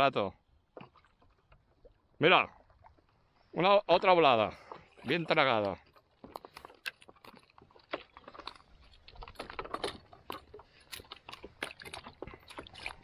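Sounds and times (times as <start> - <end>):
fish handling clicks and taps: 4.0 - 13.0.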